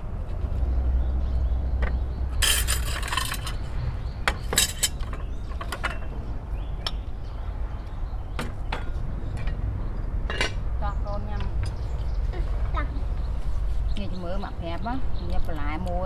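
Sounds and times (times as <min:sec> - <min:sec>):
dishes and utensils clinking: 0:02.4 - 0:03.7, 0:04.3 - 0:06.1, 0:10.3 - 0:10.6.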